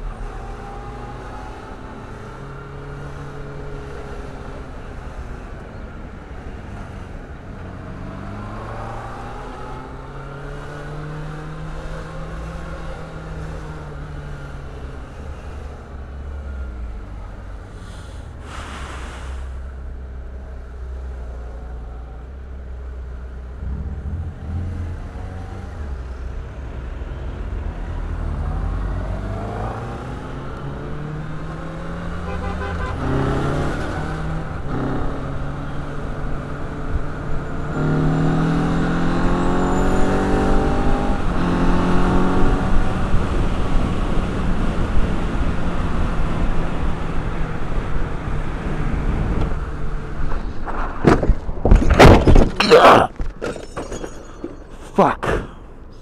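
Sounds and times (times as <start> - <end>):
wind and road noise: 0.0 - 56.0
motorcycle engine accelerating: 23.5 - 26.7.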